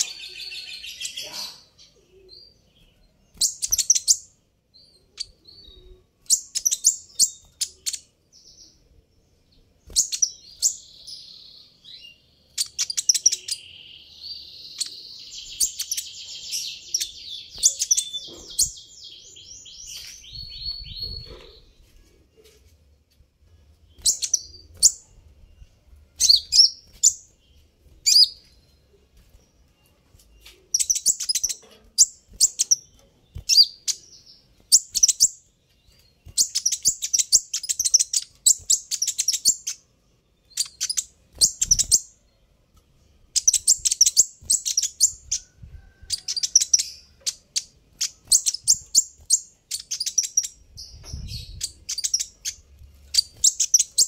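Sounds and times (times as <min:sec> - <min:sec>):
high-pitched bird chirps: 0:03.3 - 0:08.1, 0:12.5 - 0:21.8, 0:24.0 - 0:27.2, 0:30.4 - 0:39.8, 0:40.5 - 0:42.2, 0:43.4 - 0:54.0.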